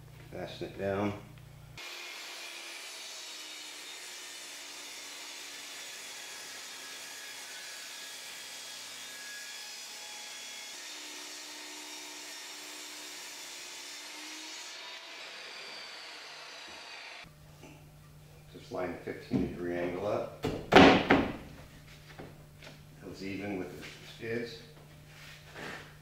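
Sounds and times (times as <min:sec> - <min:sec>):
table saw cutting wood: 0:01.8 - 0:17.3.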